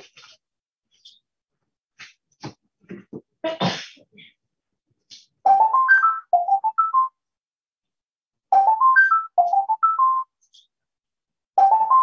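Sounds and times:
electronic ringtone melody: 5.5s - 7.2s, 8.5s - 10.3s, 11.6s - 12.0s.

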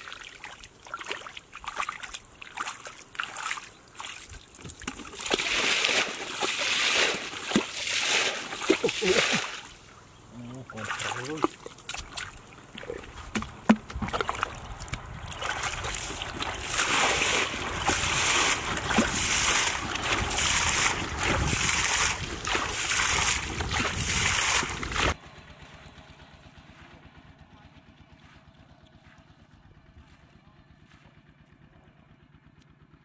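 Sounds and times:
water splashing from bailing: 0.0s - 25.2s
faint outdoor background: 8.6s - 16.5s.

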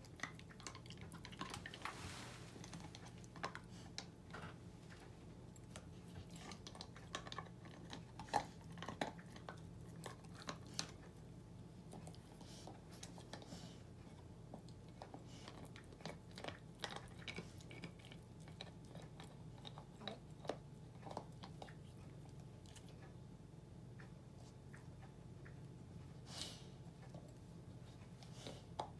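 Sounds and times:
dog gnawing an antler: 0.0s - 2.0s, 2.6s - 23.2s.

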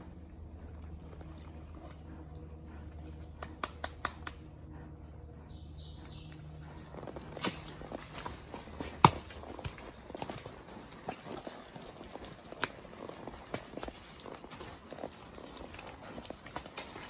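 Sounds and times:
low steady hum: 0.0s - 11.0s
horse footfalls on dirt: 6.2s - 17.0s.

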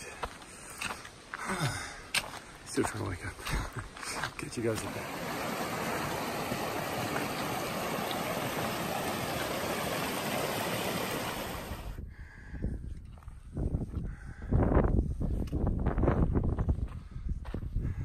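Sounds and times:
river water rushing: 4.7s - 11.9s.

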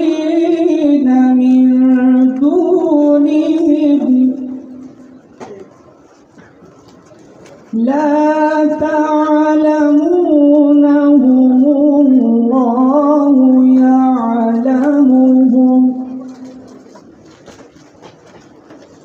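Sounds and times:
person singing long held notes: 7.8s - 16.6s.

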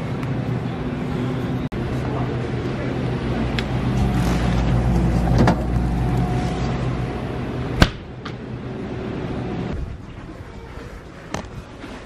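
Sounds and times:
freezer cases humming: 0.6s - 9.7s.

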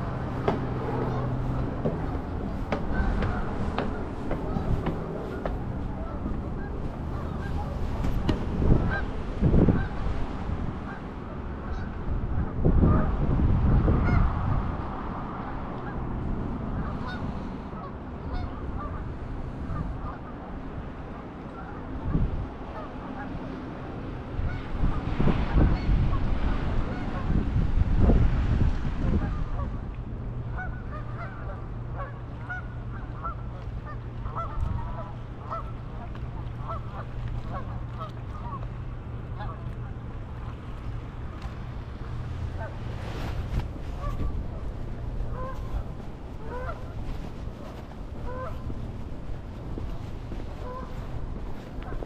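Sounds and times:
geese honking: 0.0s - 9.1s, 11.6s - 12.0s, 17.8s - 19.0s, 30.4s - 40.0s, 43.9s - 48.8s, 49.8s - 51.1s
low steady rumble: 0.0s - 52.0s.

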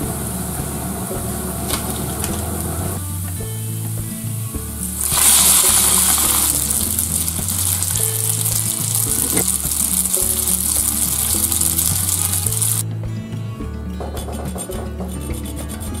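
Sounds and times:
pasta sizzling in frying pan: 4.8s - 12.8s
chopsticks stirring in pan: 4.9s - 12.8s.

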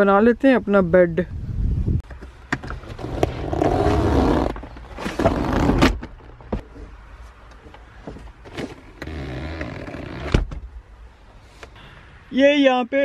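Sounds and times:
seat mechanism clicks and knocks: 7.5s - 10.7s.

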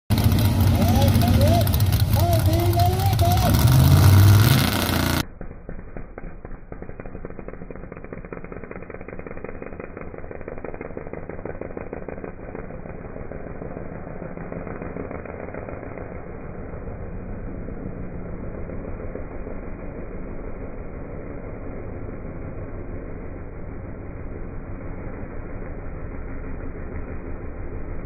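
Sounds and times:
muffled slowed engine rattle: 0.1s - 28.0s.

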